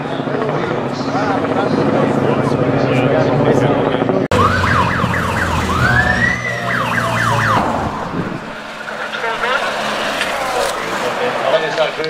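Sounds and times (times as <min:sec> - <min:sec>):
engine drone: 0:02.0 - 0:12.0
police siren yelping and wailing: 0:04.3 - 0:11.2.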